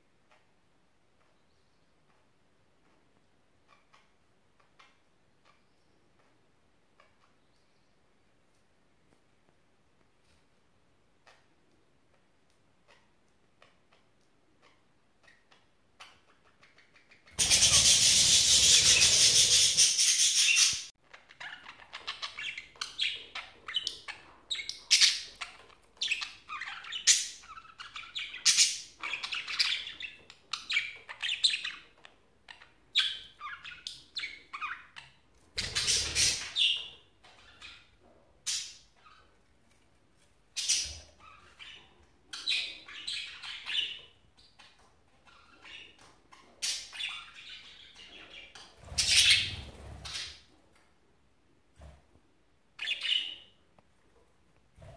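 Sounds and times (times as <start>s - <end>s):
budgerigars chirping: 16.2s - 31.9s, 35.6s - 37.9s, 40.6s - 50.4s.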